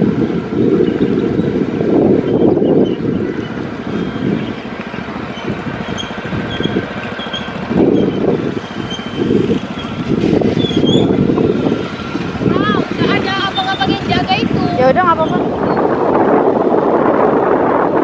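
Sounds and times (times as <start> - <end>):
motor scooter engine running: 0.0 - 18.0
wind buffeting microphone: 0.0 - 18.0.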